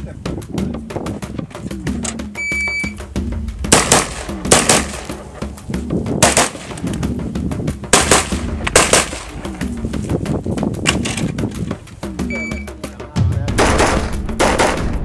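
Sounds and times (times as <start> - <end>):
shot timer beep: 2.4 - 3.0, 12.3 - 12.8
rifle shots in pairs: 3.7 - 5.3, 6.2 - 6.9, 7.9 - 9.4, 13.6 - 15.0.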